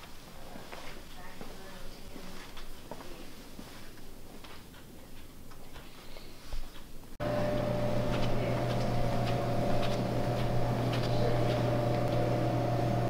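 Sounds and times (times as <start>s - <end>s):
footsteps on hard floor: 0.0s - 5.9s, 6.5s - 12.4s
machine hum with high whine: 7.2s - 13.0s.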